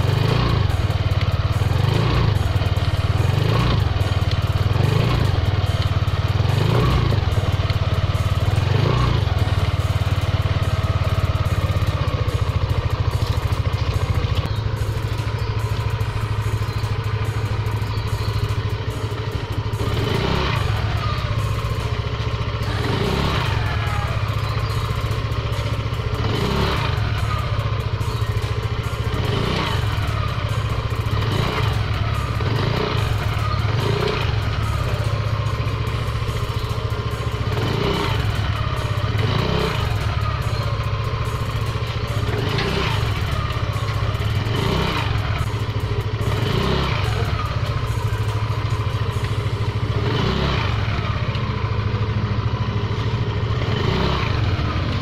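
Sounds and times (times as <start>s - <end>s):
scooter engine revving: 0.0s - 55.0s.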